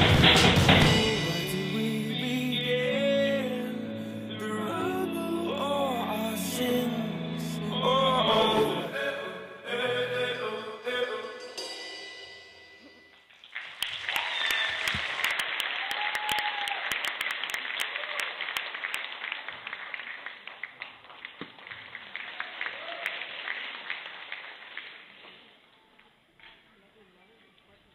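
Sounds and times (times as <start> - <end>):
backing music: 0.0 - 12.3
audience applauding: 13.4 - 25.3.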